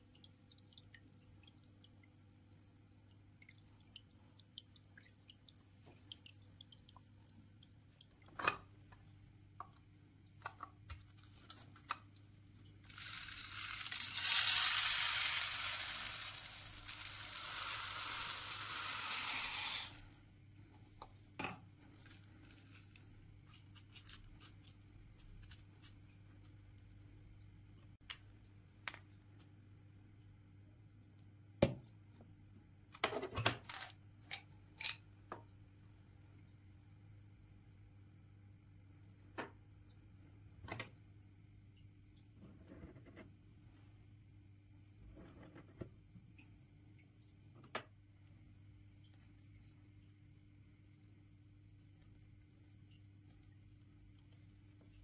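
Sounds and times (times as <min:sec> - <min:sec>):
soil pouring into plastic box: 0:12.8 - 0:20.1.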